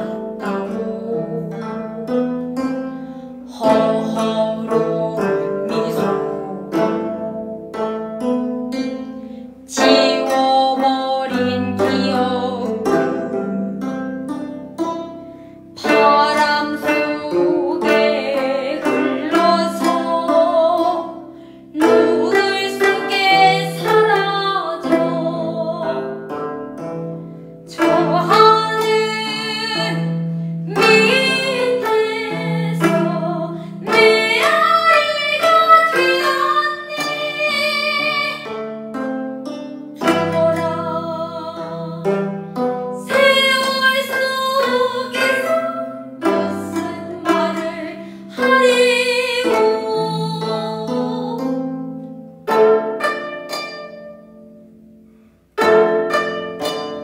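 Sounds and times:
plucked zithers: 0:00.0 - 0:57.0
woman singing with vibrato: 0:03.5 - 0:07.0, 0:09.7 - 0:13.3, 0:15.8 - 0:21.1, 0:21.7 - 0:26.2, 0:27.7 - 0:30.1, 0:30.7 - 0:38.6, 0:40.0 - 0:42.2, 0:42.9 - 0:51.6.

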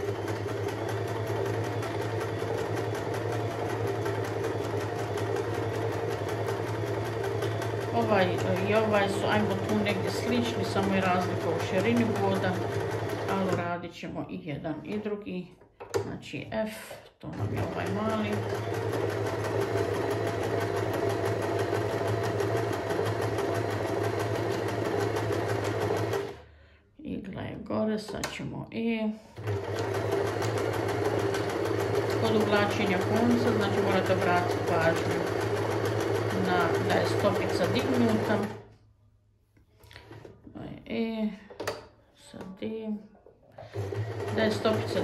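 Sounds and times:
sewing machine running: 0:00.0 - 0:13.7, 0:17.4 - 0:26.4, 0:29.4 - 0:38.7, 0:43.6 - 0:45.0.

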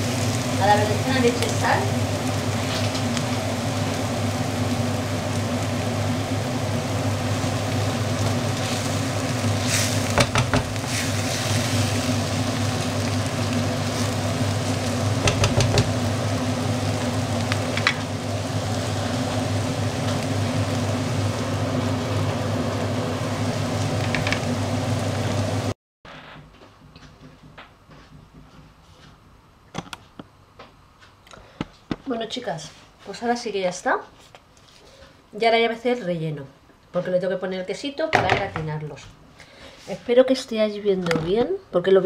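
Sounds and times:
vegetables sizzling in a pan: 0:00.0 - 0:25.8
spatula knocking against pan: 0:15.2 - 0:15.9.

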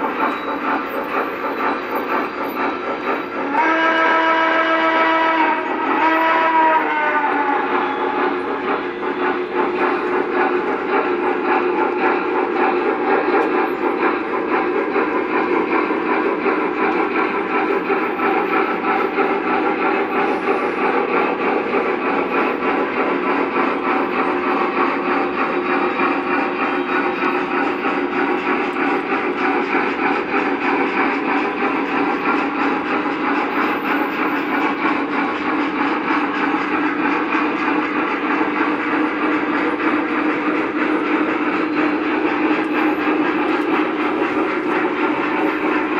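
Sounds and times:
model trains rumbling on track: 0:00.0 - 0:45.9.

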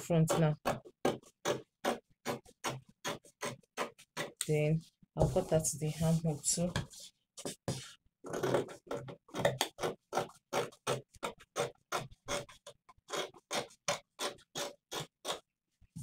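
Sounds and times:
scissors cutting fabric: 0:08.3 - 0:15.5.

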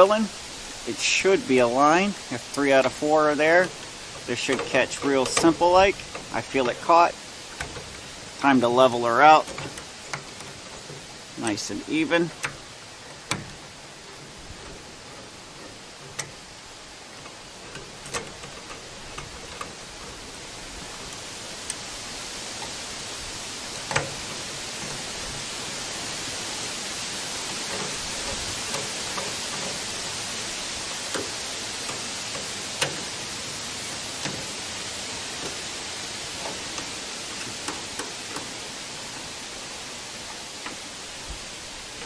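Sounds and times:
steady hiss: 0:00.0 - 0:42.0
screwdriver clicks on metal plate: 0:03.6 - 0:06.8, 0:07.6 - 0:08.1.

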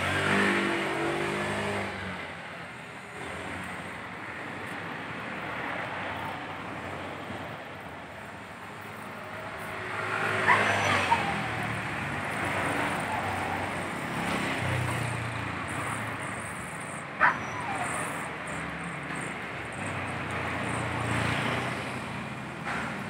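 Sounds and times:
gas welding torch hissing: 0:14.9 - 0:22.5.

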